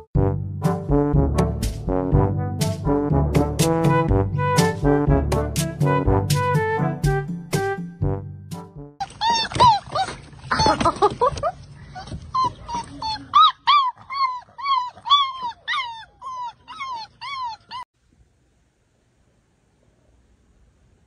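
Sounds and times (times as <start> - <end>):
puppy whimpering and yipping: 9.0 - 11.0, 12.0 - 17.9.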